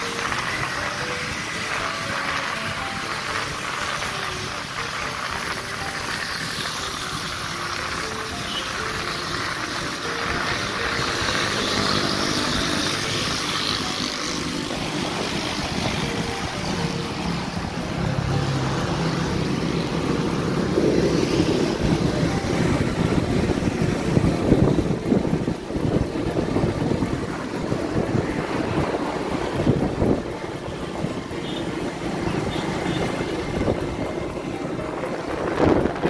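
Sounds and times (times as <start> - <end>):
steady vehicle drone: 0.0 - 36.0
wind buffeting microphone: 21.7 - 31.3, 32.1 - 36.0.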